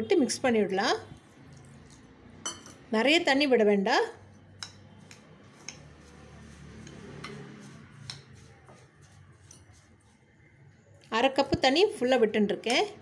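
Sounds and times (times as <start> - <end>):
spoon clicking on glass bowl: 4.6 - 5.8.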